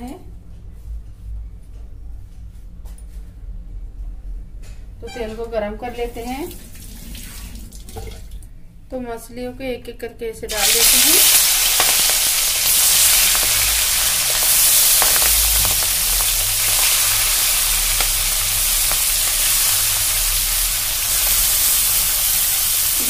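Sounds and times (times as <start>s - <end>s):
prawns sizzling in hot oil: 10.5s - 23.0s.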